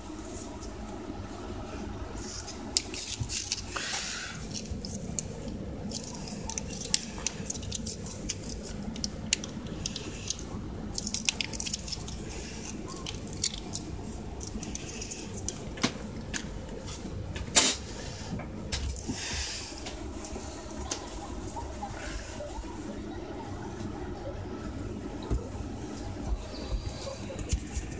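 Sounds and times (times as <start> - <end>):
wet paste squishing: 2.2 - 16.5.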